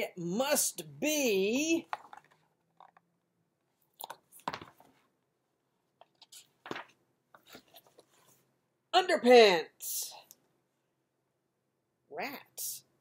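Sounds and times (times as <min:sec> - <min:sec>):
book pages rustling: 0:01.8 - 0:03.0, 0:03.9 - 0:05.1, 0:06.0 - 0:08.5.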